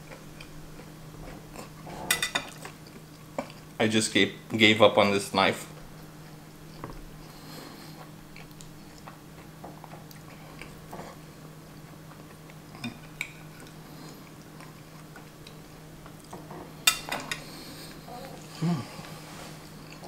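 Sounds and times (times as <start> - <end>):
chewing: 0.0 - 1.8, 2.4 - 3.8, 5.8 - 16.5, 17.4 - 20.0
low steady hum: 0.0 - 20.0.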